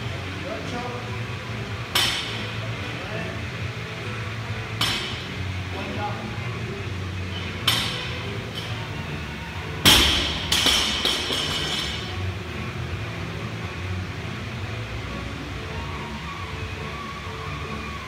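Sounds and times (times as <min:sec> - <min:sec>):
barbell clanging on floor: 0:04.8 - 0:05.3, 0:07.6 - 0:08.8, 0:09.8 - 0:12.1
weight plates clinking: 0:07.3 - 0:08.9, 0:09.9 - 0:12.2.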